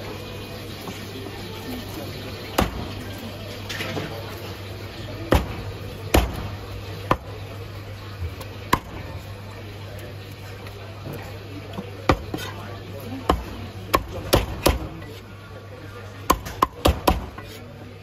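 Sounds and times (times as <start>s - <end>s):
cleaver chopping on wooden block: 16.3s - 17.4s.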